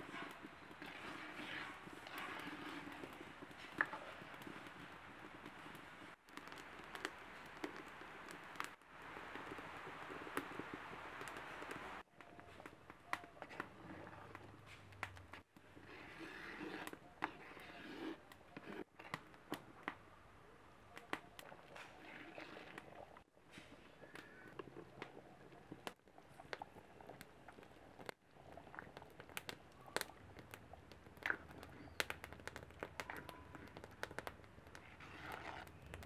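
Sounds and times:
metal spoon stirring in clay pot: 0:00.0 - 0:08.7, 0:09.3 - 0:19.9, 0:21.0 - 0:36.0
low steady hiss: 0:01.1 - 0:12.1.

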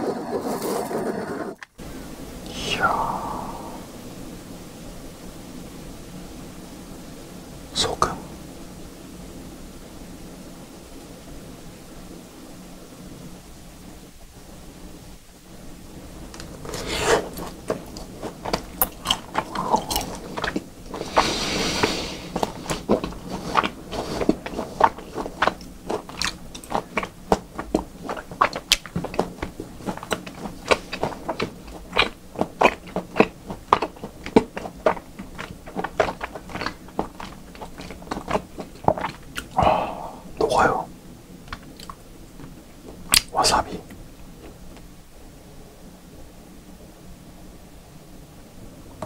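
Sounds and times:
mouth chewing raw meat: 0:16.4 - 0:42.0.

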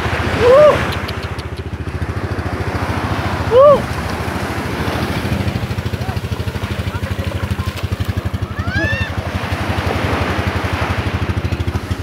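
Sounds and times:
small engine chugging: 0:00.0 - 0:12.0
person calling out: 0:00.4 - 0:00.9, 0:03.5 - 0:03.8.

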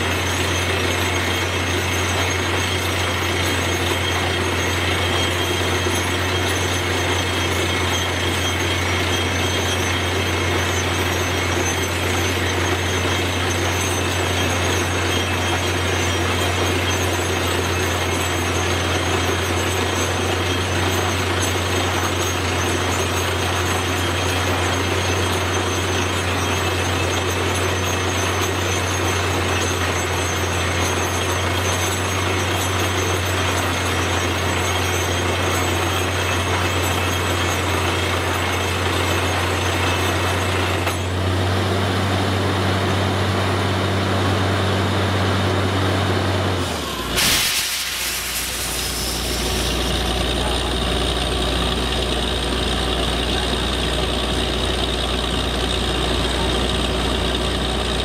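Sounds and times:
air compressor: 0:00.0 - 0:43.6, 0:46.6 - 0:58.0
drilling rig engine: 0:00.0 - 0:58.0
sharp hiss of released air: 0:47.2 - 0:49.8.

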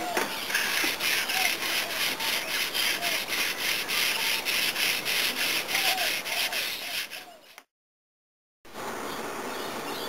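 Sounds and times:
sandpaper rasping on wood: 0:00.5 - 0:07.7.

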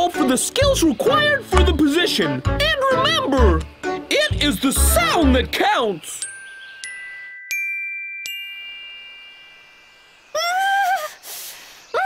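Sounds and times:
bell-like chime notes: 0:06.2 - 0:10.2.

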